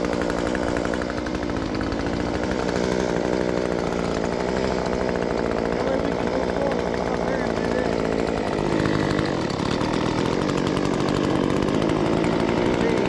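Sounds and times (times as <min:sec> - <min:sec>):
power cutting tool running: 0:00.0 - 0:13.0.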